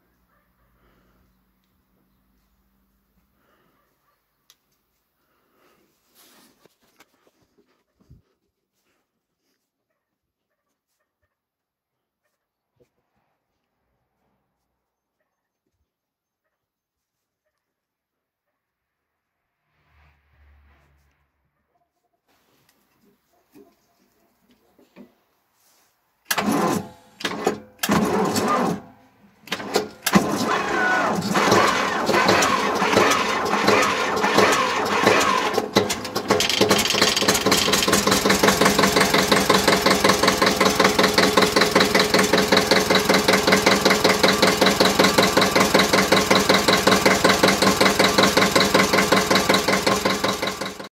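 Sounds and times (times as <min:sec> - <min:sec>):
diesel engine starting and idling: 0:26.3 - 0:50.9.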